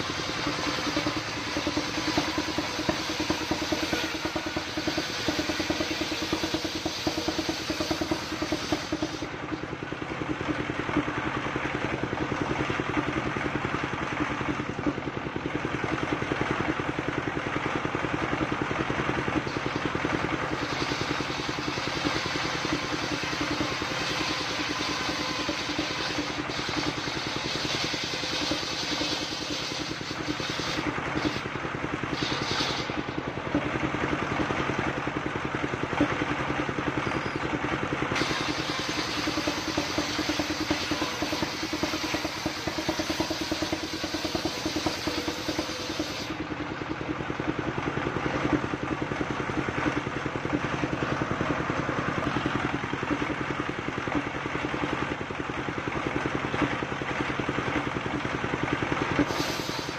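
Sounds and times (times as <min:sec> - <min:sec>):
saw blade cutting wood: 0:00.0 - 0:09.4, 0:19.5 - 0:31.5, 0:32.1 - 0:33.1, 0:38.2 - 0:46.5, 0:59.2 - 0:59.9
diesel engine running: 0:00.0 - 0:59.9.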